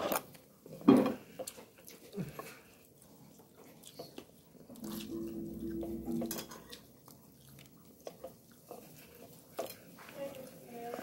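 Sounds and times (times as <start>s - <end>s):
low steady hum: 4.6s - 7.2s.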